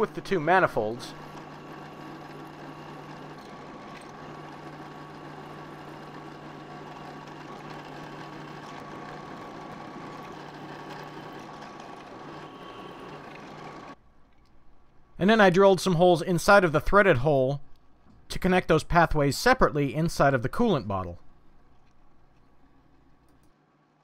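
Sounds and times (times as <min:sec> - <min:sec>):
drill press drilling metal: 0:00.0 - 0:14.0.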